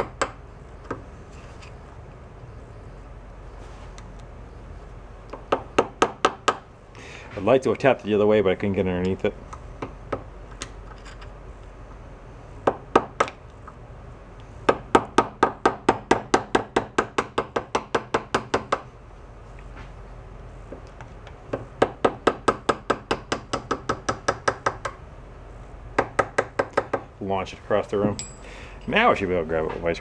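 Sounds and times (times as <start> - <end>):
hammer tapping steel punch: 28.1 - 28.4.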